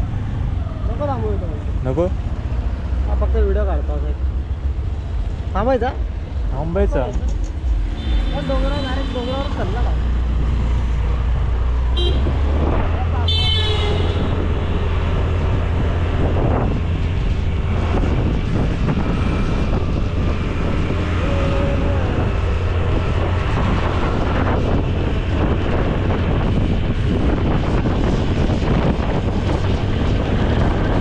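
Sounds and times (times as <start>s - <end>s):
wind buffeting microphone: 4.2s - 31.0s
motor scooter riding: 18.7s - 25.6s.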